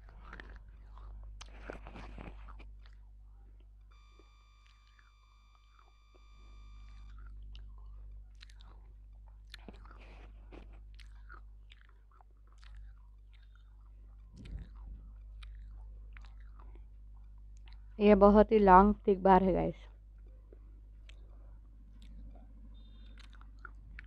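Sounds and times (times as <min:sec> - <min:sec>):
chewing and crunching: 0:00.0 - 0:04.0, 0:05.7 - 0:05.9, 0:06.8 - 0:18.0, 0:19.8 - 0:24.0
low constant hum: 0:00.0 - 0:24.0
steady high tone: 0:04.0 - 0:07.1.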